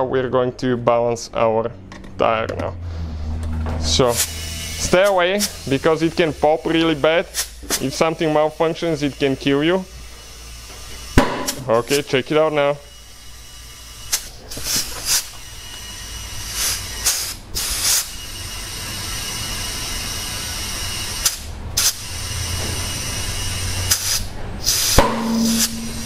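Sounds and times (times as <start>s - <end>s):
compressed air hissing into tire: 4.1s - 9.3s, 9.9s - 12.1s, 12.8s - 26.0s
tire bead popping: 23.9s - 26.0s.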